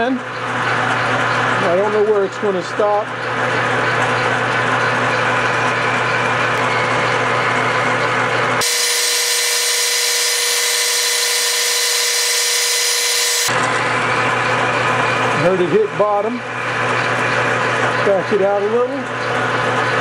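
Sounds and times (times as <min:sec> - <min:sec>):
metal lathe cutting hum: 0:03.6 - 0:18.1.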